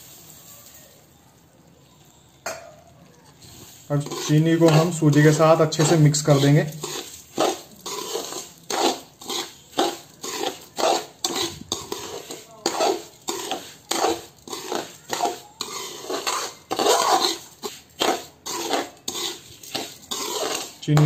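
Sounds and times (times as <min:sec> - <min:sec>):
metal spatula scraping a pan: 0:03.3 - 0:21.0.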